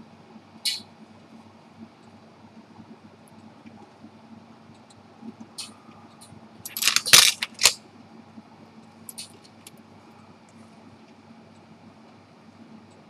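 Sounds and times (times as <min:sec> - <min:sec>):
small metal parts clicking: 0:06.7 - 0:07.8.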